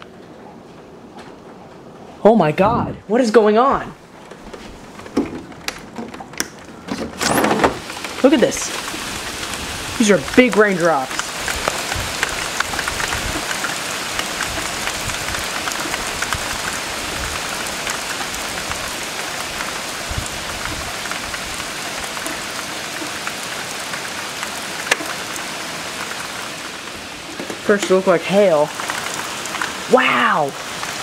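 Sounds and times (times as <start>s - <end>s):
heavy rain hissing: 7.3s - 31.0s
raindrop ticks: 7.8s - 31.0s.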